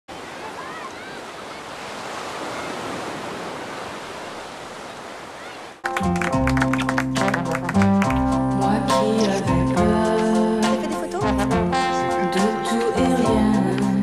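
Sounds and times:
waves on a pebble beach: 0.1s - 5.8s
plucked string music: 5.8s - 14.0s.

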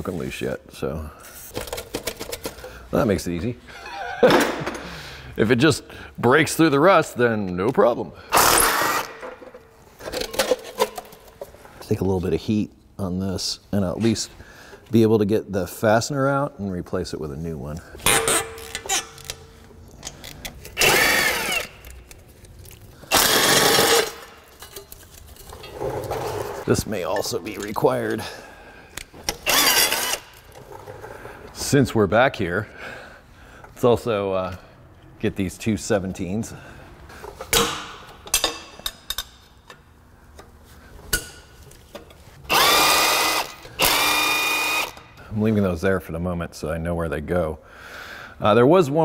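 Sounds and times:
power tool motor whirring: 20.8s - 22.0s, 23.1s - 24.3s, 29.4s - 30.5s, 42.5s - 45.0s
sharp ratchet click: 29.3s - 30.4s.

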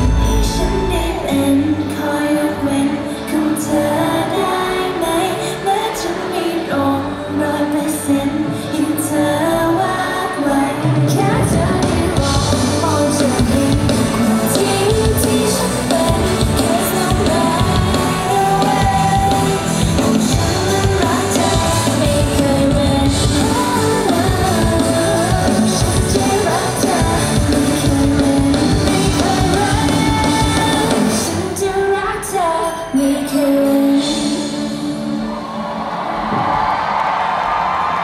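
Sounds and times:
women singing into microphones: 0.0s - 35.5s
live band with drums and bass: 11.0s - 31.4s.

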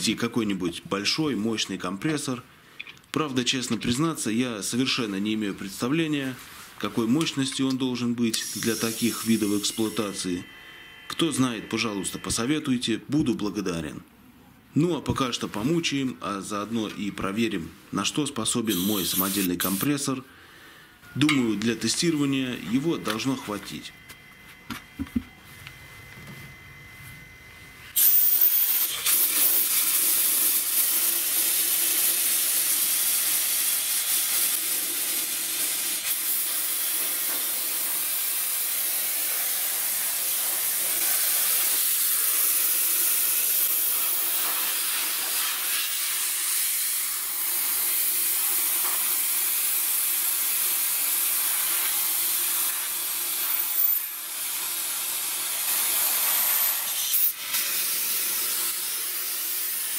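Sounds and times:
sandblaster hissing: 8.3s - 10.8s, 18.6s - 20.0s, 27.9s - 59.9s.

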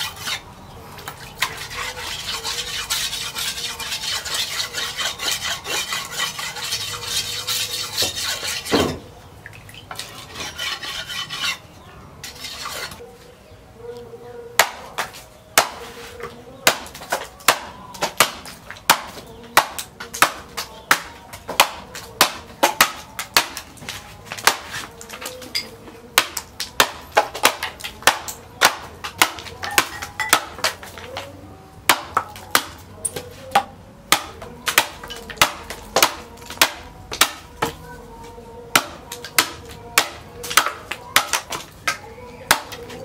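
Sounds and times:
machete chopping into wooden block: 8.7s - 9.0s, 14.6s - 15.8s, 16.7s - 25.2s, 26.2s - 30.9s, 31.9s - 32.8s, 33.5s - 37.8s, 38.8s - 43.0s.

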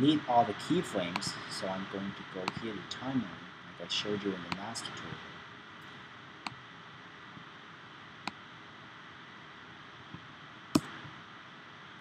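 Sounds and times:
computer whirring hiss: 0.0s - 12.0s
computer clicks: 2.5s - 2.7s.

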